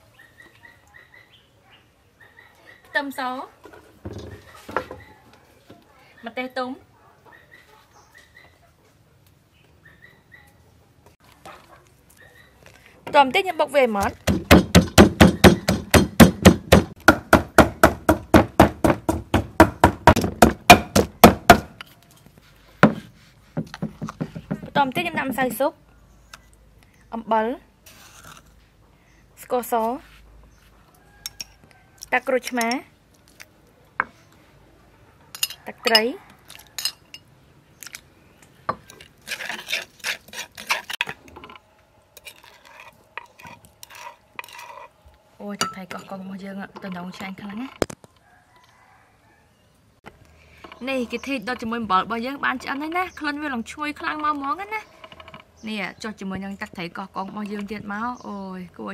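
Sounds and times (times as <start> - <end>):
pestle pounding in a mortar: 14.0 - 21.8, 22.8 - 25.2
metal spoon scraping clay mortar: 27.8 - 28.6, 38.8 - 41.6, 42.2 - 47.8, 50.5 - 58.2.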